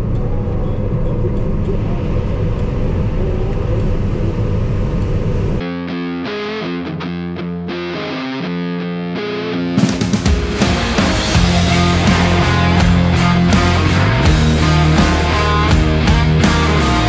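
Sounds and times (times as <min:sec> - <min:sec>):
background music: 0:05.6 - 0:17.0
combine harvester engine running: 0:10.5 - 0:17.0.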